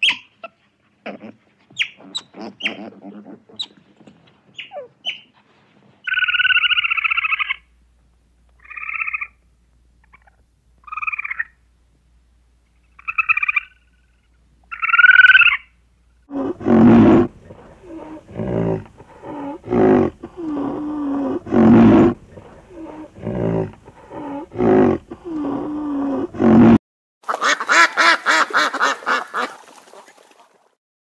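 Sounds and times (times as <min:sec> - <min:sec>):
high animal call: 0:01.1 - 0:03.8
short pulsed animal calls: 0:08.6 - 0:09.4, 0:12.8 - 0:15.7.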